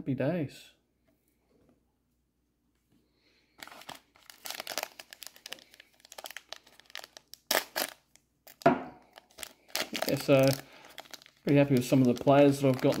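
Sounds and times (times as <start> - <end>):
foil wrapper crinkling: 3.6 - 13.0.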